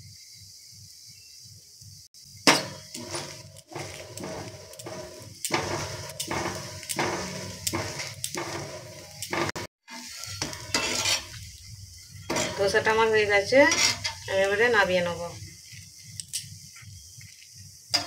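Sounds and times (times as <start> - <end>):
oil sizzling: 1.8 - 18.0
metal clink on griddle: 2.5 - 11.4, 12.2 - 14.6
metal spatula scraping griddle: 2.5 - 14.5.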